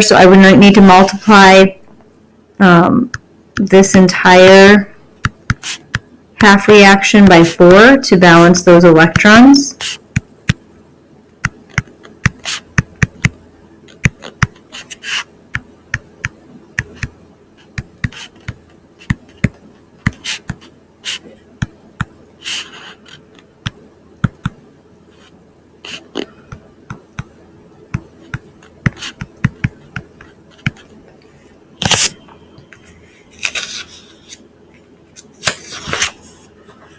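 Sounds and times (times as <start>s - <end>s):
faint steady hum: 0.0s - 36.9s
stylus tapping on tablet screen: 5.2s - 6.1s, 10.1s - 10.6s, 11.4s - 14.7s, 15.5s - 20.7s, 21.6s - 22.2s, 23.6s - 24.6s, 25.9s - 30.9s
scratchy pen strokes: 5.5s - 6.0s, 11.7s - 13.2s, 13.9s - 15.3s, 16.8s - 19.5s, 20.1s - 21.3s, 22.4s - 23.2s, 25.1s - 26.2s, 28.2s - 30.9s.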